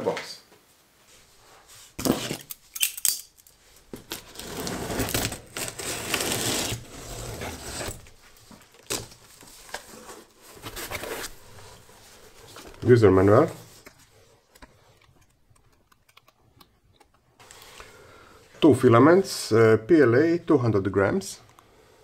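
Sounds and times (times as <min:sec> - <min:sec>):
cardboard scraping and rustling: 0:03.9 - 0:13.8
knife slitting packing tape: 0:04.1 - 0:08.0.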